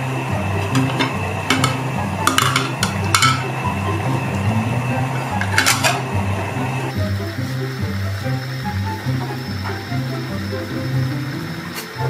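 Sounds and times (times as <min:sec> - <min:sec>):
background music: 0:00.0 - 0:12.0
pot lid clinking: 0:00.6 - 0:04.4, 0:05.1 - 0:06.2.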